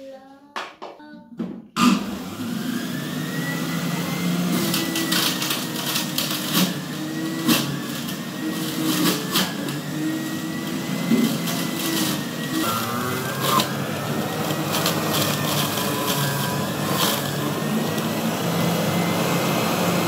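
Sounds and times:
juicer motor humming: 0:01.8 - 0:20.0
carrots crunching: 0:12.6 - 0:18.3.

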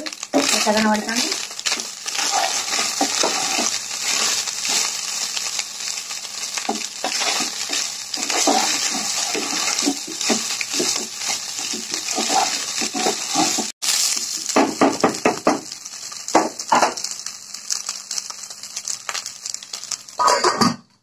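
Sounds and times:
frying sizzle: 0:00.0 - 0:20.6
spatula scraping a pan: 0:00.2 - 0:05.2, 0:06.6 - 0:13.8.

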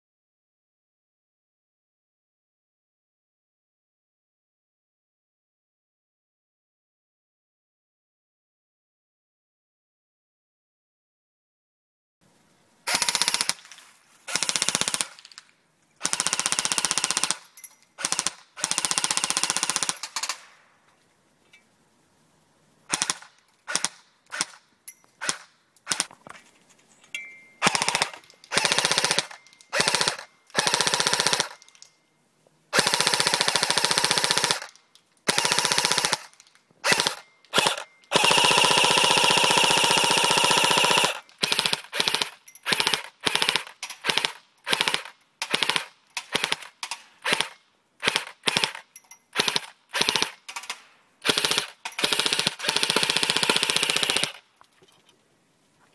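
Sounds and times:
airsoft gun firing bursts: 0:12.9 - 0:13.7, 0:14.3 - 0:15.3, 0:16.0 - 0:20.4, 0:22.9 - 0:24.6, 0:25.2 - 0:26.1, 0:27.6 - 0:31.7, 0:32.7 - 0:48.8, 0:49.4 - 0:50.5, 0:51.2 - 0:54.4.

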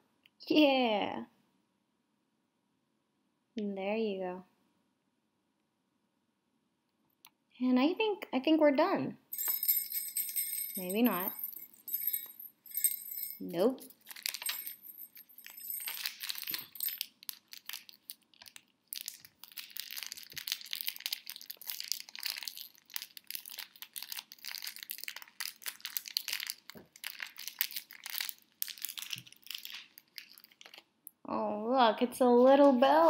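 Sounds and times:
wrapping paper crinkling and tearing: 0:15.9 - 0:30.9.

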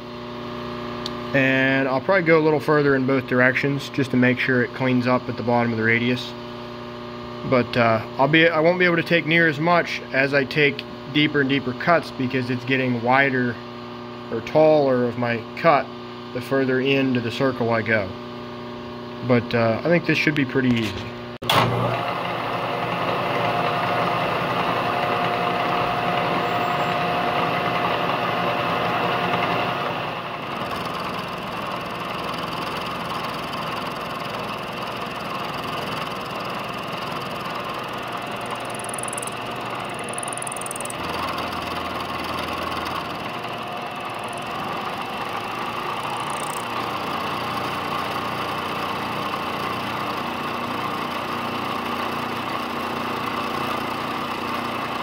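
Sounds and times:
milling machine cutting metal: 0:30.4 - 0:50.4.

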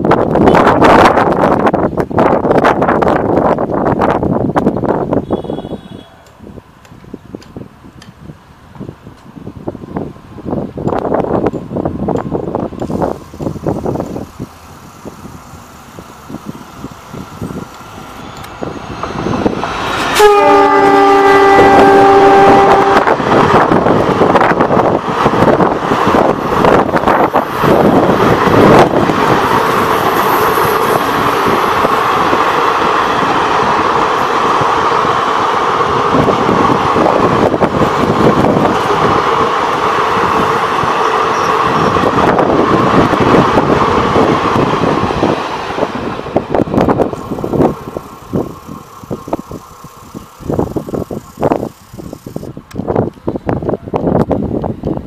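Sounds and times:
train rumbling past: 0:00.0 - 0:55.0
train horn: 0:05.2 - 0:06.4, 0:20.0 - 0:23.2.

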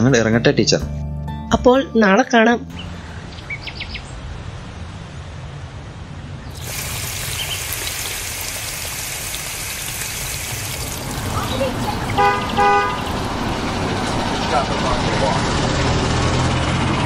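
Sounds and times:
hose water spraying: 0:06.5 - 0:14.2.

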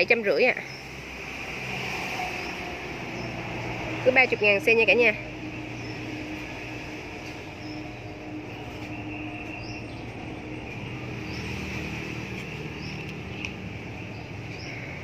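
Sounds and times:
bird chirping: 0:04.9 - 0:15.0.

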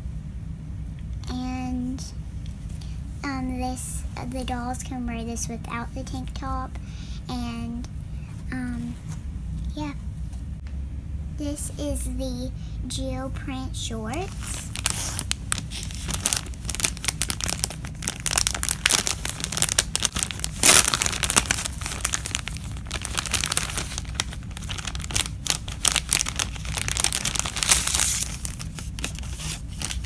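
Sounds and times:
plastic bag crinkling: 0:14.2 - 0:30.0.

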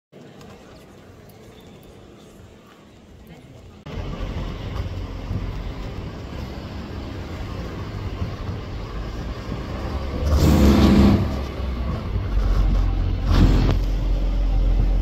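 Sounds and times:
fireworks rumbling and banging: 0:03.9 - 0:15.0.

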